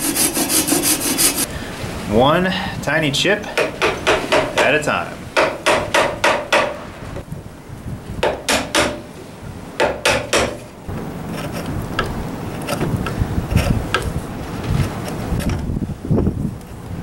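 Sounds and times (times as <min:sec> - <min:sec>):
chisel strikes: 0:03.6 - 0:04.7, 0:05.4 - 0:06.8, 0:08.2 - 0:09.0, 0:09.8 - 0:10.6.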